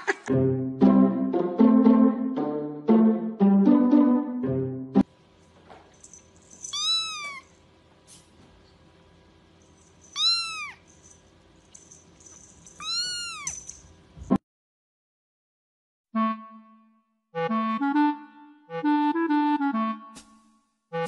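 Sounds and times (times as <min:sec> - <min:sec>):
kitten meowing: 0:06.7 - 0:07.5, 0:10.2 - 0:10.8, 0:12.8 - 0:13.6.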